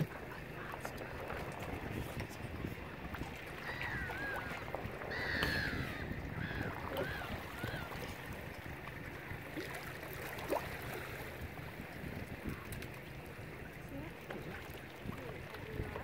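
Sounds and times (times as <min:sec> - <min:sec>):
gull calling: 0:03.6 - 0:08.2.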